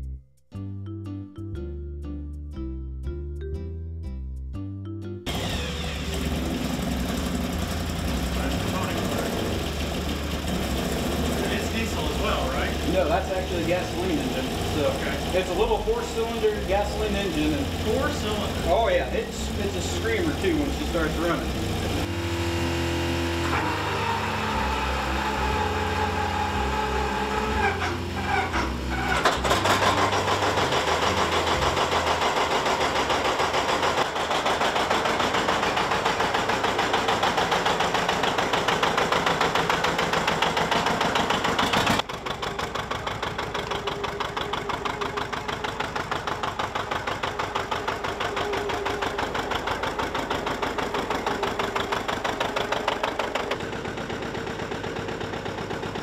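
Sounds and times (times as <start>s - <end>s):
diesel tractor engine running: 4.8s - 56.0s
small motor screaming: 5.3s - 9.5s, 19.5s - 31.9s.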